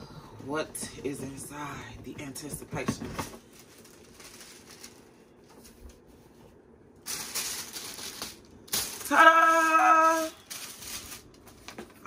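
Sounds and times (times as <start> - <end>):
packaging rustling: 3.0 - 6.3, 7.0 - 12.0.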